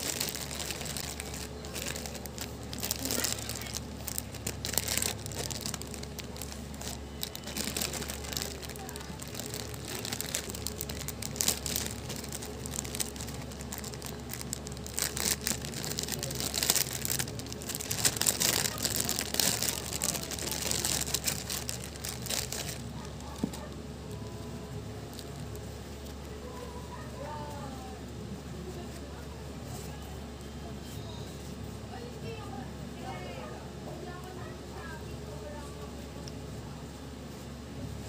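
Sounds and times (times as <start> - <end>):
plastic packaging crinkling: 0.0 - 26.0.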